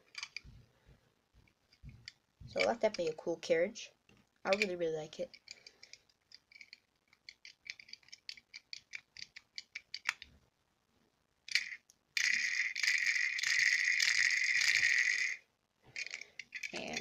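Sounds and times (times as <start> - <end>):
pencil sharpener rattling: 4.5 - 10.3, 11.5 - 17.0
pencil sharpener wheel clicking: 11.5 - 15.4.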